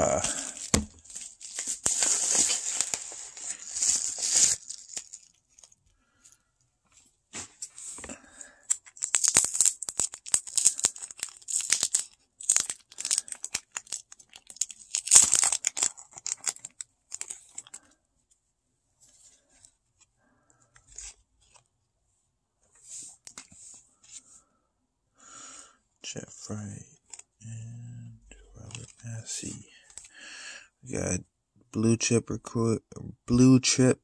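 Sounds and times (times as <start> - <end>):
plastic crinkling and crackling: 0.0 - 6.0, 7.5 - 18.0.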